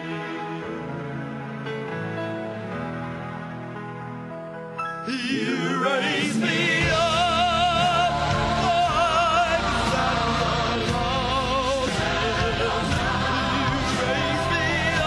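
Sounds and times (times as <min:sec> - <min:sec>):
backing track: 0:04.7 - 0:15.0
man singing with vibrato: 0:05.0 - 0:15.0.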